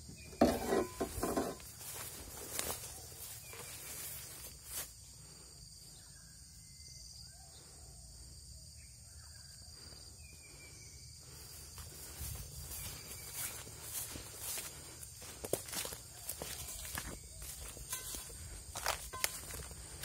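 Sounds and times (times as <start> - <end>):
insect chorus: 0.0 - 20.0
footsteps in grass and leaves: 0.1 - 5.4, 11.2 - 20.0.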